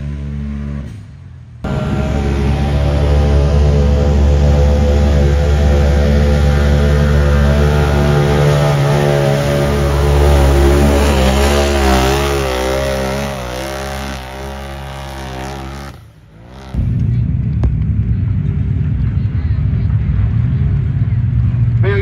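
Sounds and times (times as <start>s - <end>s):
low rough engine rumble: 0.0s - 22.0s
engine revving high: 1.6s - 17.0s.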